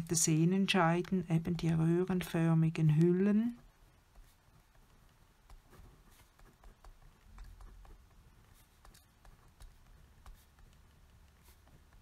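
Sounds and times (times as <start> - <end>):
pen scratching on paper: 4.0 - 12.0.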